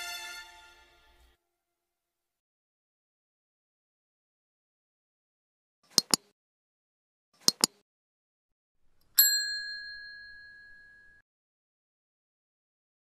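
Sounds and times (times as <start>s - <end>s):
double mouse clicks: 5.9s - 6.3s, 7.4s - 7.8s
bright bell ding: 9.2s - 11.2s.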